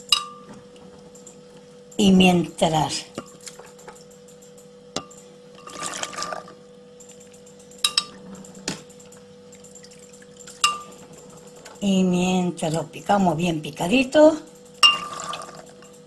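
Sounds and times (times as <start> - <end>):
chickpeas clinking against glass: 14.6 - 16.0.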